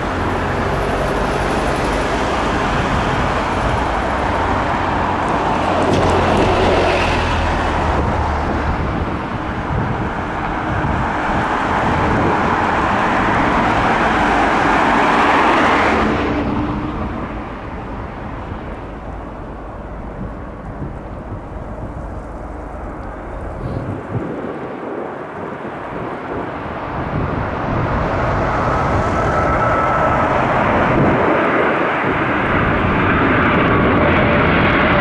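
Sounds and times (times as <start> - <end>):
bus engine running: 0.0 - 24.3
road traffic noise: 0.0 - 35.0.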